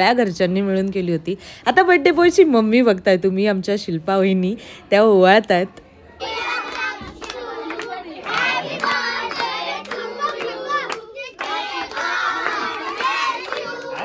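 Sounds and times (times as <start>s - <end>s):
children singing: 6.2s - 14.0s
hands clapping: 6.5s - 14.0s.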